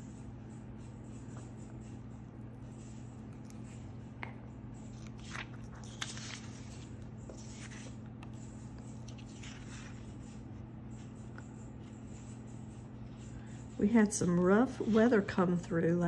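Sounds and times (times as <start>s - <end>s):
dry paper rustling: 4.9s - 8.0s, 9.0s - 10.4s.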